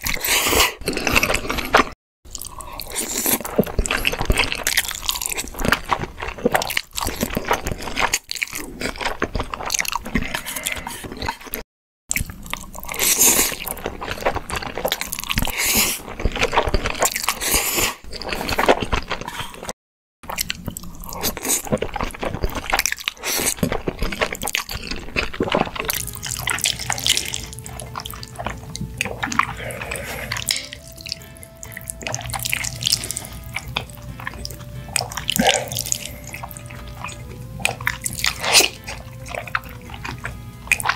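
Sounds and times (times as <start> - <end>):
slurping and chewing noodles: 0.0 - 40.9
soft music with held notes: 25.8 - 40.9.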